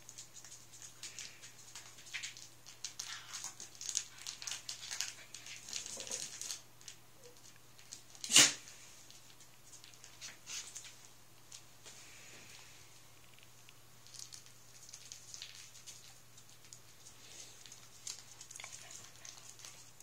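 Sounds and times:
puppy claws scrabbling on floor: 0.0 - 8.2, 13.2 - 19.9
dog yap: 8.2 - 8.6.

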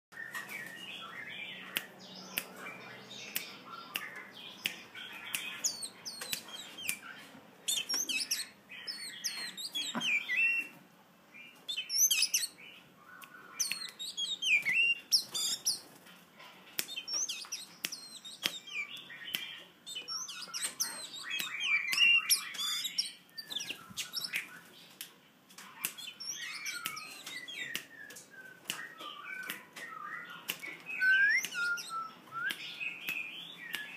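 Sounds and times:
bird whistling and chirping: 5.0 - 10.8, 11.4 - 15.8, 16.9 - 24.7, 25.8 - 33.9.

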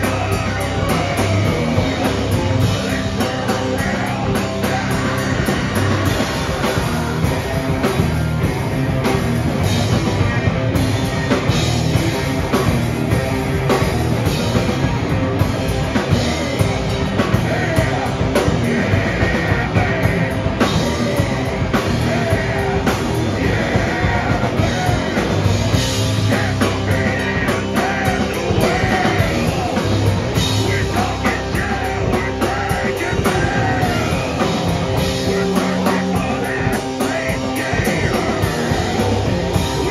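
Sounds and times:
person singing into microphone: 0.0 - 7.4, 16.1 - 39.9
bass guitar: 0.0 - 39.9
distorted electric guitar: 0.0 - 39.9
fast drum kit: 0.0 - 39.9.

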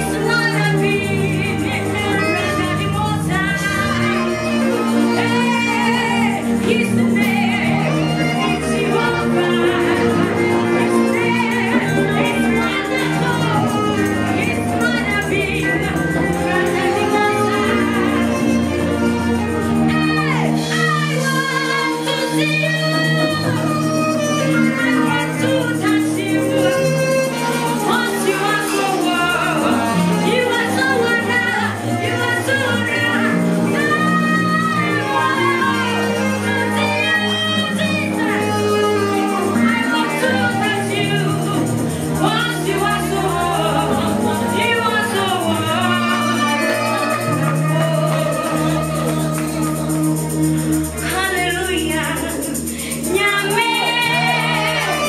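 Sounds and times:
woman singing into microphone: 0.0 - 55.0
worship band playing: 0.0 - 55.0.

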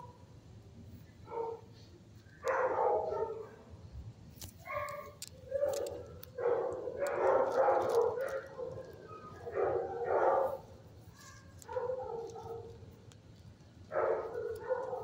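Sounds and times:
dogs barking: 1.2 - 1.7, 2.4 - 3.6, 4.6 - 12.9, 13.9 - 15.0.

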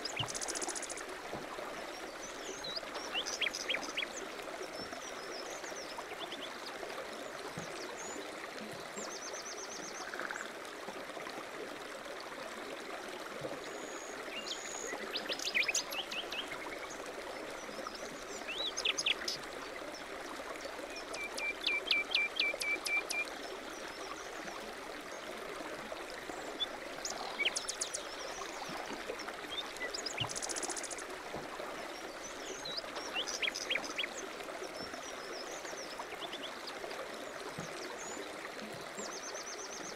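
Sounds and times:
running water babbling: 0.0 - 39.9
songbirds chirping and trilling: 2.1 - 4.3, 32.0 - 36.7.

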